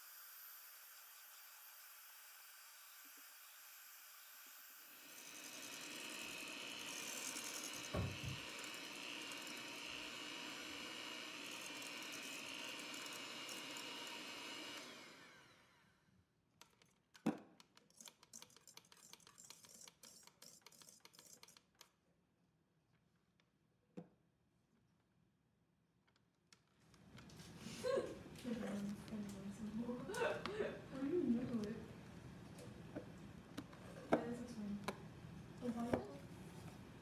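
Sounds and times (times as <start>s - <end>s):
electric hand mixer running: 0.0s - 16.0s
knock: 8.0s - 8.4s.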